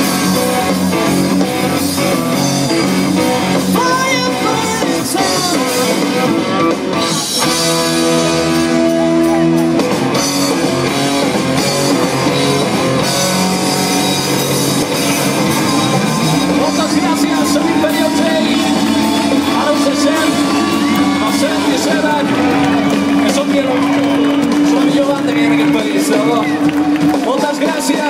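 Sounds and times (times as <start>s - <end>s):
drum kit: 0.0s - 28.0s
electric guitars: 0.0s - 28.0s
person singing: 3.8s - 6.1s.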